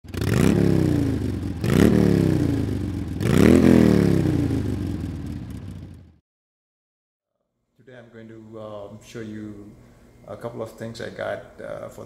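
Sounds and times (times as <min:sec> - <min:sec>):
motorcycle engine revving: 0:00.0 - 0:06.2.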